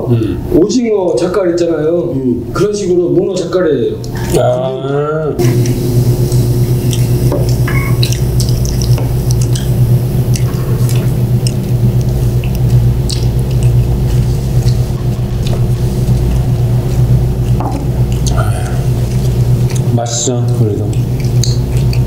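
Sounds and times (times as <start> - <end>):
steady low hum: 0.0 - 22.0
chewing: 5.4 - 22.0.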